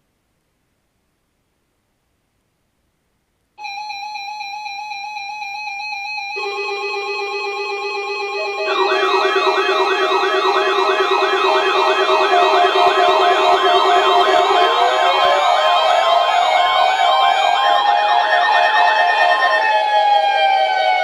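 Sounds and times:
steady high beeping tone: 0:03.6 - 0:20.2
warbling siren-like alarm: 0:06.0 - 0:21.0
lower steady tone: 0:06.2 - 0:19.8.

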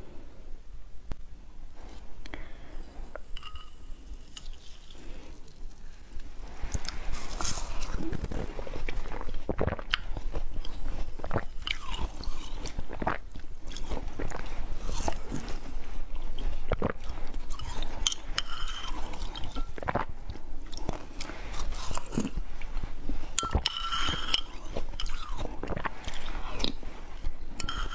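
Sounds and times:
spoon clinking against glass cup: 0:03.4 - 0:03.8, 0:23.4 - 0:25.2, 0:27.6 - 0:27.9
chewing crunchy ice: 0:04.2 - 0:22.4, 0:23.4 - 0:26.8.

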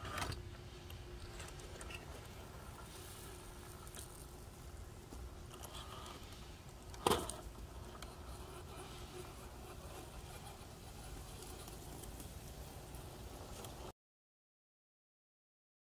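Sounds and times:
rc car crawling over rocks: 0:01.2 - 0:13.9.

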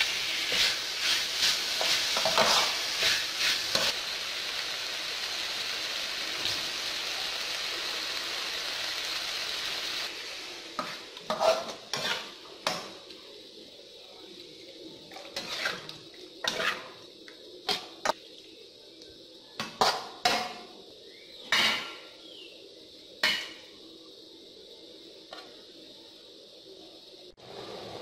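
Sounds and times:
metal spoon scraping wok: 0:00.3 - 0:04.0, 0:10.8 - 0:12.4, 0:15.2 - 0:17.0.

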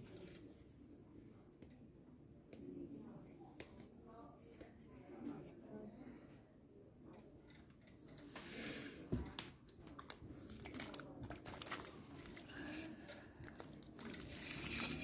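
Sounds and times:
wet clay squelching: 0:09.8 - 0:15.0.

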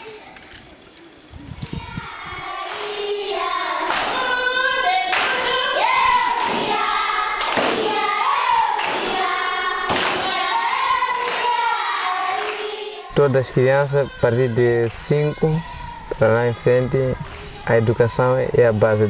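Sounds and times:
group of voices singing: 0:01.8 - 0:19.0
rhythmic thud: 0:05.1 - 0:12.8.

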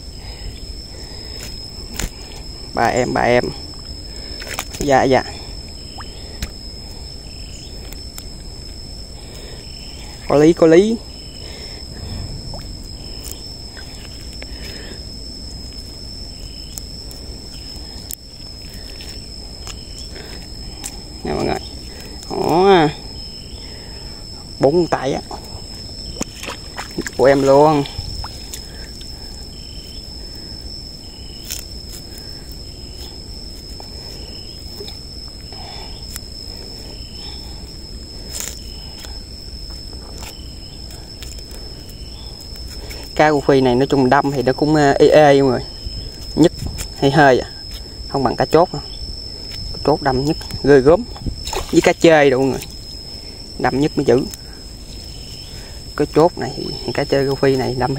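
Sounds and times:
crickets droning: 0:00.0 - 0:57.9
insects whining: 0:00.0 - 0:57.9
short insect chirps: 0:00.0 - 0:57.9
wet net rustling: 0:25.3 - 0:30.5
water splashing: 0:26.2 - 0:29.1.

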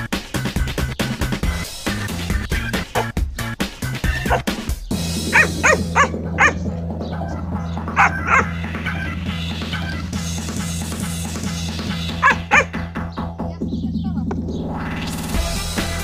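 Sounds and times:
background music with steady beat: 0:00.0 - 0:16.0
small dogs yipping and barking: 0:02.8 - 0:03.2, 0:04.1 - 0:04.6, 0:05.3 - 0:09.1, 0:12.2 - 0:12.8.

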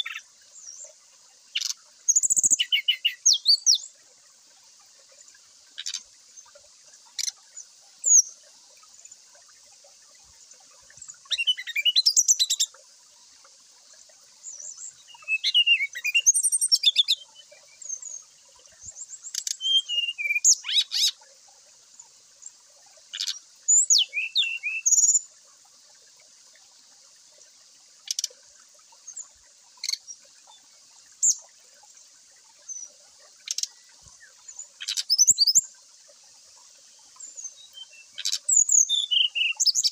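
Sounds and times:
bird singing whistled phrases: 0:11.3 - 0:12.7, 0:15.1 - 0:17.3, 0:19.6 - 0:21.1, 0:23.2 - 0:25.2, 0:37.6 - 0:39.9.

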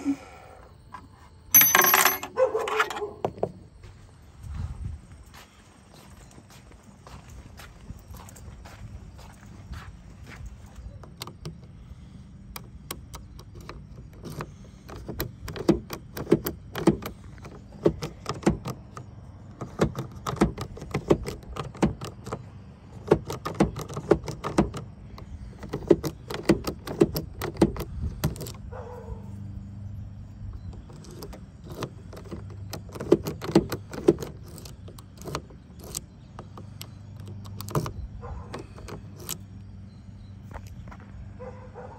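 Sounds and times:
key rattling in door lock: 0:01.5 - 0:03.1, 0:12.6 - 0:28.7, 0:30.5 - 0:39.6.

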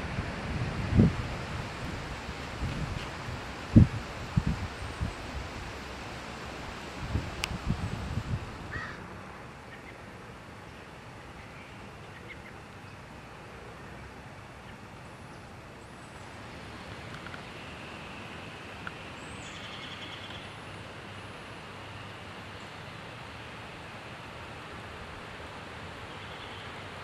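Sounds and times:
steady rushing noise: 0:00.0 - 0:09.7.

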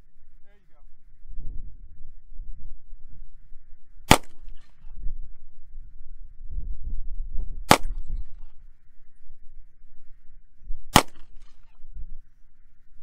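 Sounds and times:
pistol shots: 0:04.1 - 0:04.6, 0:07.7 - 0:08.1, 0:10.9 - 0:11.7.

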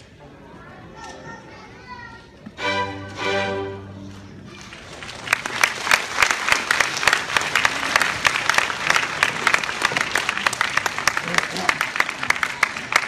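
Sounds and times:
audience applause: 0:04.4 - 0:13.0.

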